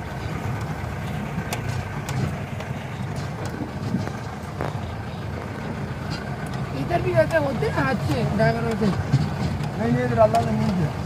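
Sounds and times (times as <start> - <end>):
car engine running: 0.0 - 11.0
sharp knocks and rattles: 0.0 - 11.0.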